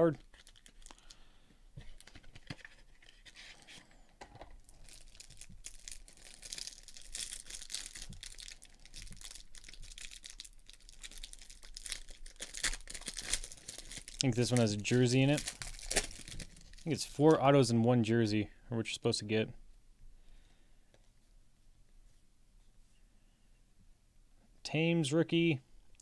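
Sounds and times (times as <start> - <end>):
plastic wrapper crinkling and tearing: 0.1 - 1.2, 1.8 - 3.7, 4.6 - 17.4.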